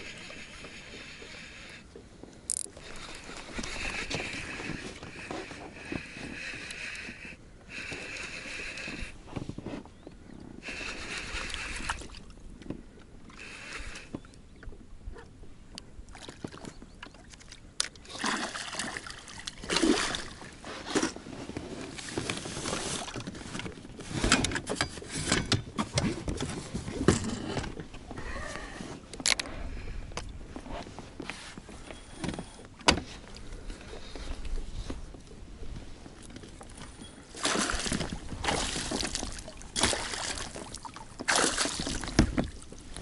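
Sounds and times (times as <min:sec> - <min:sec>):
fishing gear knocks and rustles: 0:20.9 - 0:28.2, 0:30.2 - 0:43.0.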